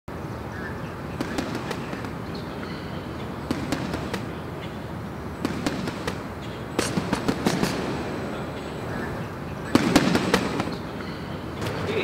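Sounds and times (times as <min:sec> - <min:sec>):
sharp irregular cracks: 0:01.2 - 0:02.4, 0:03.4 - 0:04.4, 0:05.4 - 0:08.0, 0:09.7 - 0:10.8.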